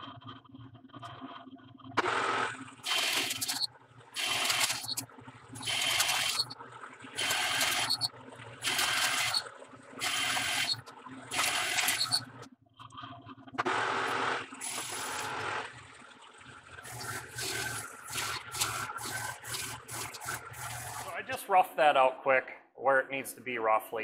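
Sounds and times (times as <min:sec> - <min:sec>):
lathe cutting tool: 0:02.0 - 0:05.0, 0:05.6 - 0:06.5, 0:07.2 - 0:09.4, 0:10.0 - 0:12.2, 0:13.7 - 0:15.6
lathe spindle hum: 0:02.0 - 0:12.5, 0:13.6 - 0:15.7, 0:16.9 - 0:21.2.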